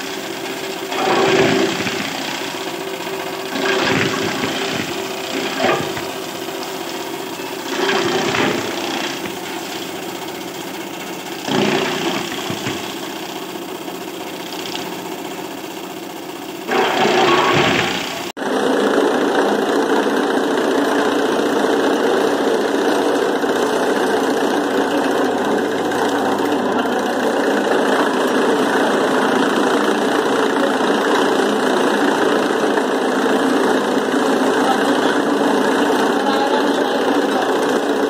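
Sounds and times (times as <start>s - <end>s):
blades chopping fodder: 0.0s - 15.4s, 16.6s - 18.3s
chaff cutter motor running: 0.0s - 38.0s.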